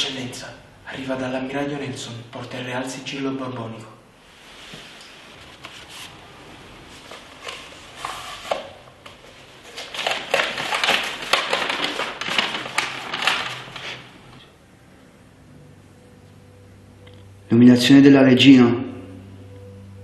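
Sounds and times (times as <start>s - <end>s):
stiff paper rustling: 6.9s - 14.4s.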